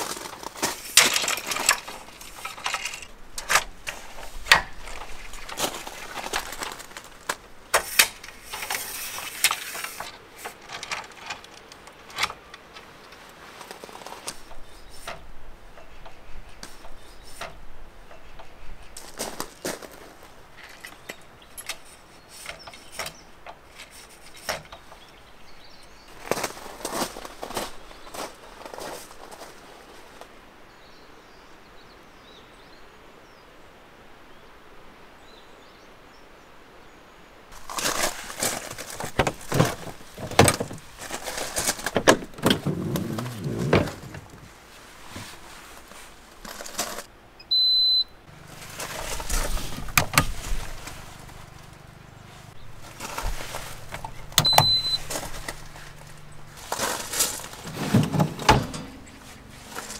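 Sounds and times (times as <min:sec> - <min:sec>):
faint birds: 0:00.0 - 0:59.9
gear knocking and clattering: 0:37.6 - 0:44.5.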